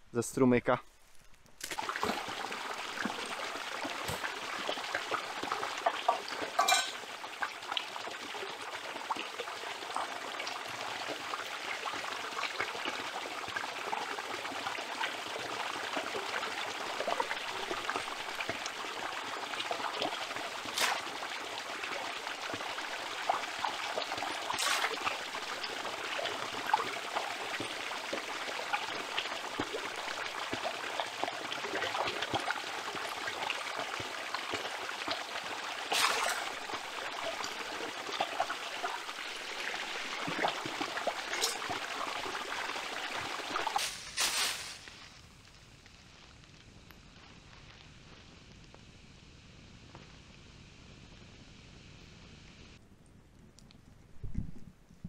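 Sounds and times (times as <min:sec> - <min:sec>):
container filling with water: 0:01.6 - 0:44.9
stream trickling over rock: 0:01.6 - 0:45.0.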